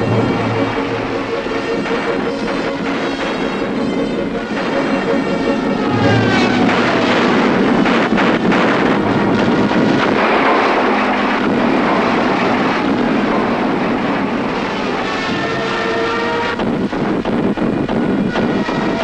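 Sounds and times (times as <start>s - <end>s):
sharp bangs: 0.0s - 3.8s, 4.6s - 13.8s
propeller aircraft engines droning: 0.0s - 14.7s
battle noise: 5.9s - 10.8s.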